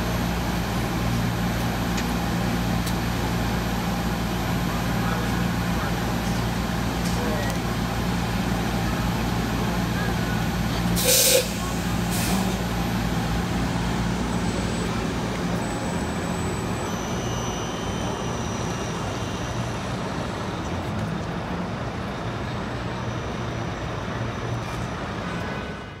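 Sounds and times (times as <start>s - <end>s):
city traffic noise: 0.0s - 26.0s
bus air brakes hissing: 10.9s - 20.1s
faint high whines: 14.3s - 20.0s.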